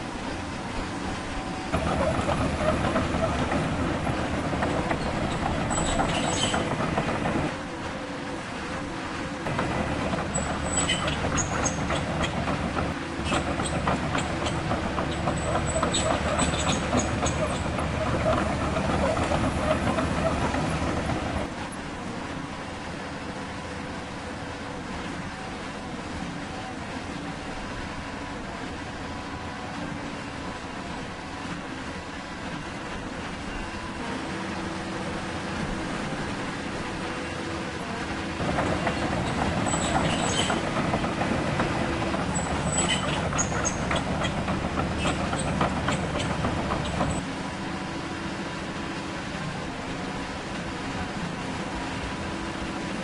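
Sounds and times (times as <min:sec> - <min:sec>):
model excavator pump and motors: 0:00.6 - 0:23.9, 0:25.2 - 0:53.0
metal tracks clattering over rubble: 0:01.7 - 0:07.6, 0:09.5 - 0:21.5, 0:38.4 - 0:47.2
model excavator hydraulic pump: 0:09.5 - 0:21.5, 0:38.4 - 0:47.2
tracks clattering over rocks: 0:38.4 - 0:47.2
short high squeals: 0:42.3 - 0:44.4.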